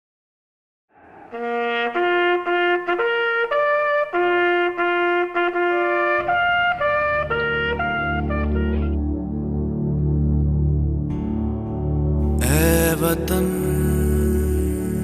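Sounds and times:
solo trumpet bugle call: 1.4s - 9.0s.

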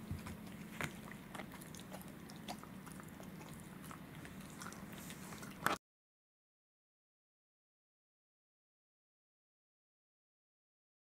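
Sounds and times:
dog gnawing rawhide chew: 0.0s - 5.8s.

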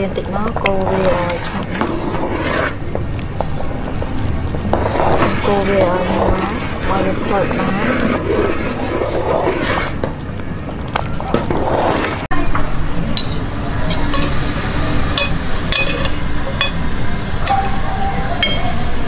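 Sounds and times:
steady background hum: 0.0s - 19.0s
metal spoons clinking on ceramic bowls: 13.2s - 14.4s, 15.2s - 16.8s.

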